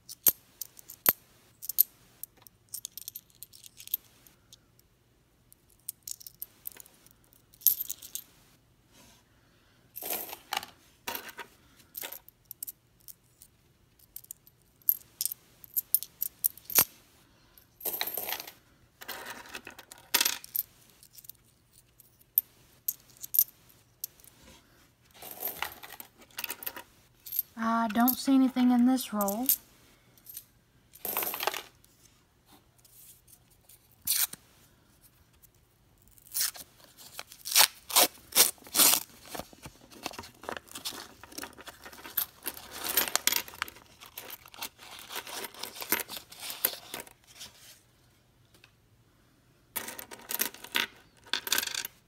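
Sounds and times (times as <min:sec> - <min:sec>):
coins clinking in hand: 0:02.7 - 0:04.1, 0:07.5 - 0:08.3, 0:14.0 - 0:16.9, 0:17.8 - 0:24.3, 0:25.2 - 0:29.6, 0:31.0 - 0:31.7, 0:49.8 - 0:51.9.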